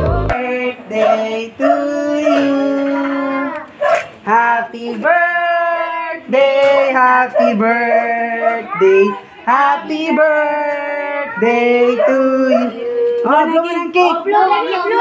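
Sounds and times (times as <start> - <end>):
voices singing long notes: 0.0 - 3.7.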